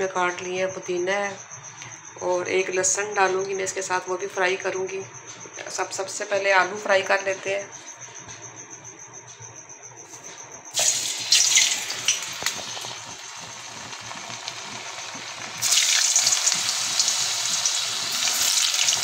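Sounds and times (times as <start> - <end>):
potato slices frying in oil: 10.8 - 19.0.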